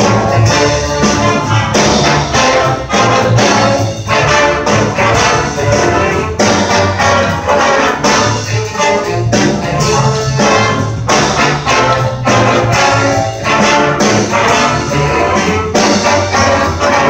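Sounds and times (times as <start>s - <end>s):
jazz big band playing: 0.0s - 17.0s
walking upright bass line: 0.0s - 17.0s.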